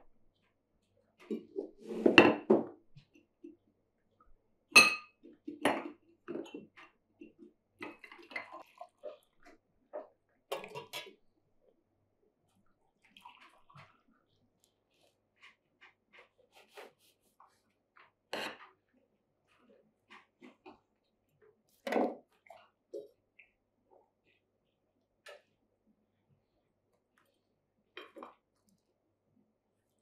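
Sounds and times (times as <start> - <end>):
plates and cups clinking: 4.8 - 6.6
tea pouring into glasses: 8.0 - 9.4, 13.0 - 13.9.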